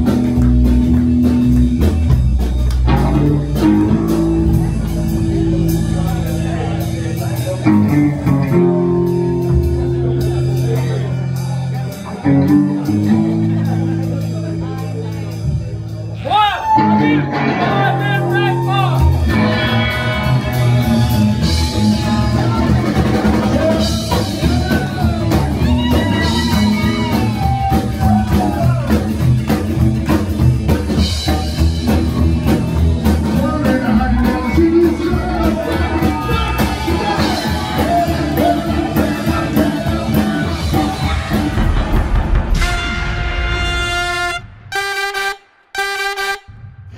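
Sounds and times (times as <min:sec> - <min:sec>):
live rock and roll band: 0:00.0 - 0:44.4
person singing: 0:33.2 - 0:41.6.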